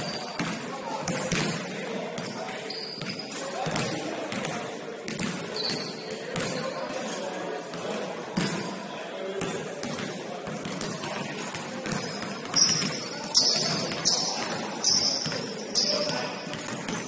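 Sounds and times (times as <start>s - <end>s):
basketball bouncing in a hall: 0.0s - 6.9s, 7.7s - 8.8s, 9.4s - 17.0s
shoe squeaks: 2.2s - 3.4s, 5.5s - 6.8s, 11.9s - 16.8s.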